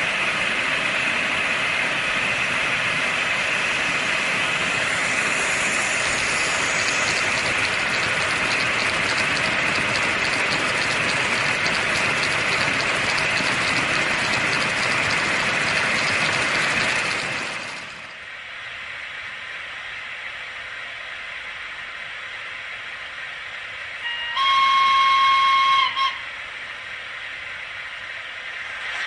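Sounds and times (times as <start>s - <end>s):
model train wheels rattling on rails: 0.1s - 18.3s, 28.3s - 29.0s
freight wagons clicking: 5.0s - 18.2s.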